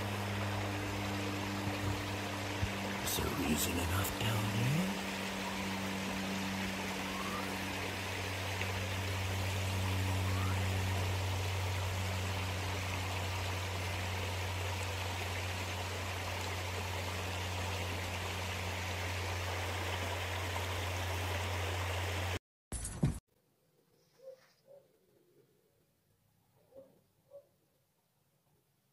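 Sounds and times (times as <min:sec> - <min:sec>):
constant low hum: 0:00.0 - 0:22.4
creek water running over rocks: 0:00.0 - 0:22.4.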